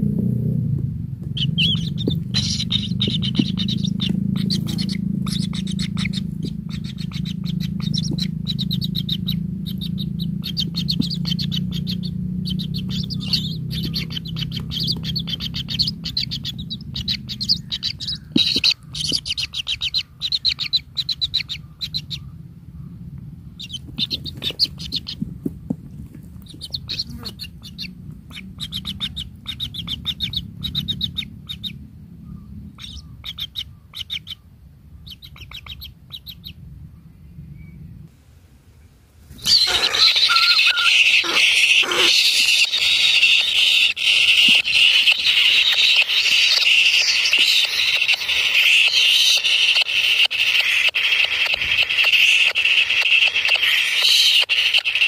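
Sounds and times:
low steady hum: 0:00.0 - 0:49.1
nestlings high rapid chirps: 0:01.3 - 0:22.2, 0:23.6 - 0:25.4, 0:26.3 - 0:31.7, 0:39.3 - 0:55.0.

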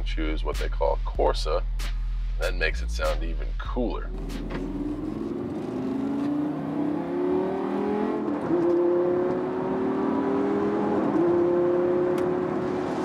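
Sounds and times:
car engine accelerating hard: 0:04.1 - 0:13.0.

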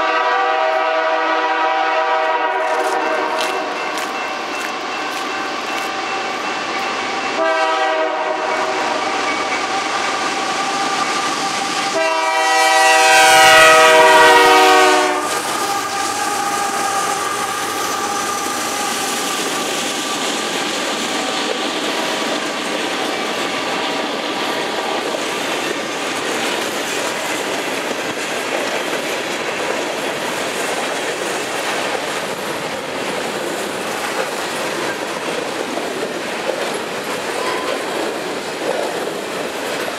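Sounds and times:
locomotive horn blasts: 0:00.0 - 0:05.3, 0:07.3 - 0:09.4, 0:11.9 - 0:17.4
train wheels rumbling and clacking: 0:00.0 - 0:39.9.

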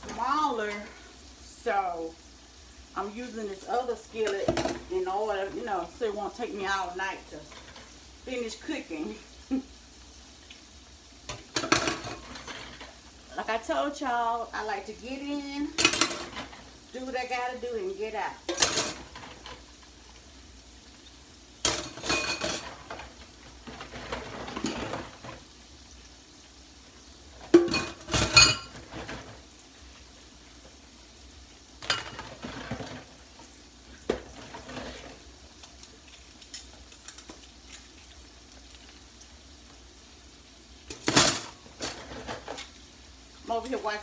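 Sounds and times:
dishes and cutlery clattering: 0:11.3 - 0:12.9, 0:15.8 - 0:16.6, 0:18.5 - 0:19.5, 0:21.7 - 0:23.0, 0:23.7 - 0:25.4, 0:27.5 - 0:29.4, 0:31.8 - 0:33.0, 0:40.9 - 0:42.7.

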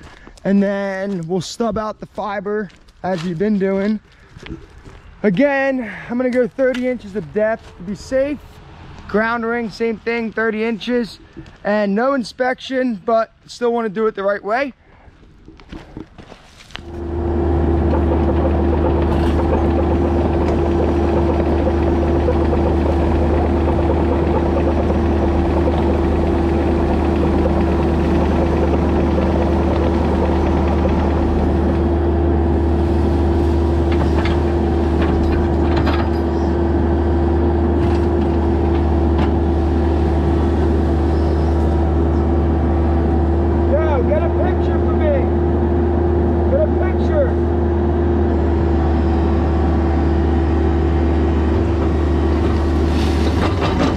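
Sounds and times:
excavator diesel engine with whine: 0:16.7 - 0:53.9
bucket scraping leaves and gravel: 0:32.6 - 0:35.0, 0:52.6 - 0:53.6.

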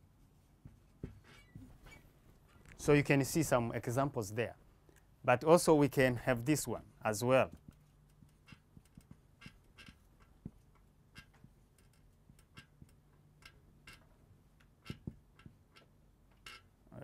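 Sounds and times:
marker taps and squeaks on whiteboard: 0:07.5 - 0:16.6.

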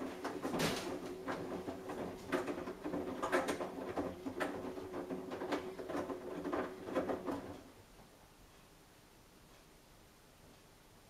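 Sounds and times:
laundry thudding in drum: 0:00.0 - 0:07.7
washing machine motor hum: 0:00.0 - 0:08.0.

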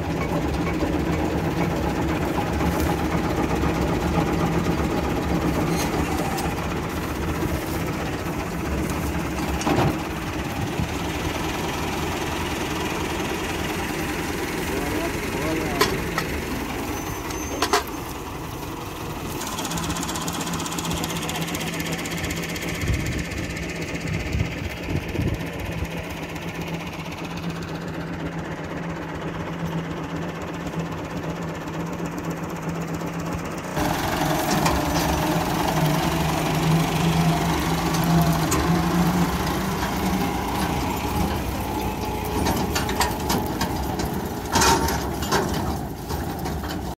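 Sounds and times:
thresher machinery: 0:00.0 - 0:23.4, 0:33.8 - 0:46.9
tractor diesel engine running: 0:00.0 - 0:46.9.

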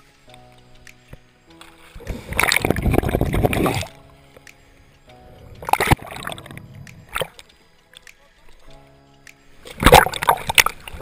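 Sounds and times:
background music with held notes: 0:00.0 - 0:11.0
water sloshing and splashing: 0:01.5 - 0:04.0, 0:05.5 - 0:07.4, 0:09.6 - 0:11.0.

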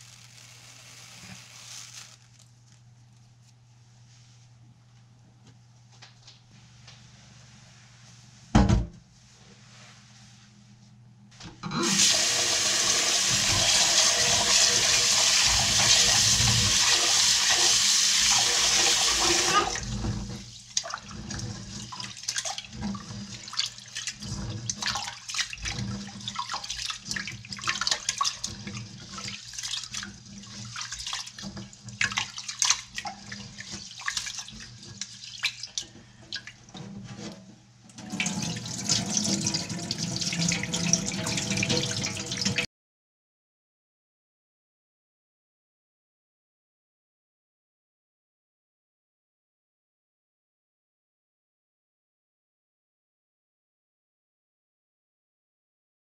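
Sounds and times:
water swishing and sloshing: 0:19.4 - 0:42.7
tap water running into vessel: 0:37.9 - 0:42.6.

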